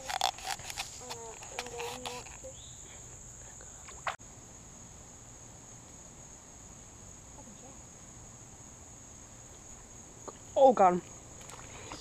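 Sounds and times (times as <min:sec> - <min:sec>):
person speaking: 0:00.0 - 0:02.6
insects calling: 0:00.0 - 0:12.0.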